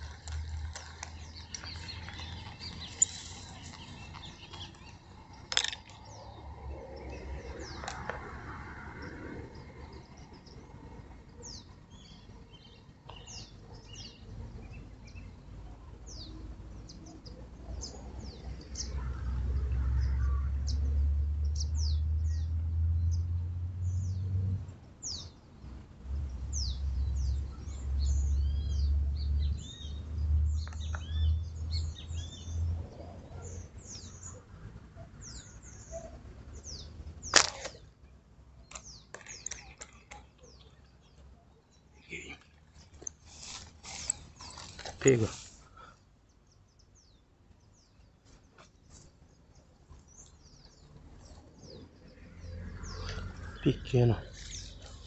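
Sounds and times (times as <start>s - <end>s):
birds chirping: 0.0s - 55.0s
sharp snap: 37.3s - 37.8s.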